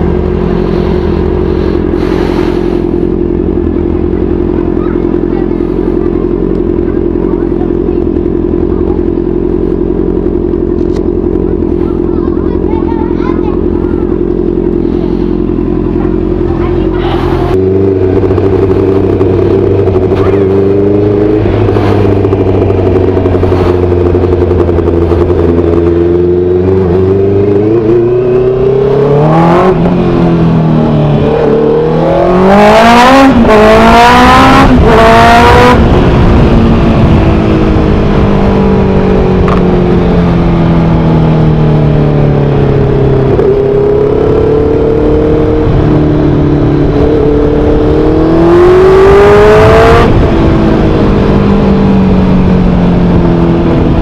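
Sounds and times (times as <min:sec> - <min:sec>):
motorcycle engine accelerating: 0:00.0 - 0:54.0.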